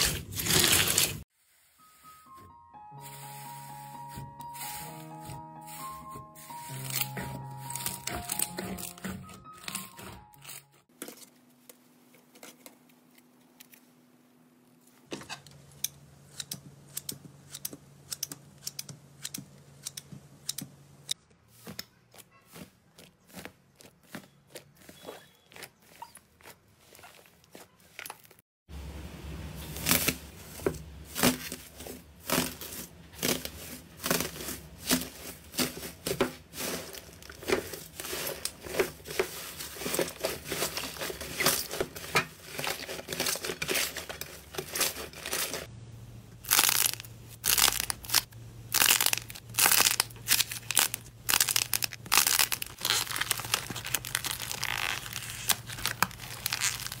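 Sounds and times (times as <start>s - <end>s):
slime crackling and tearing: 0.0s - 1.2s, 31.1s - 35.8s, 46.4s - 57.0s.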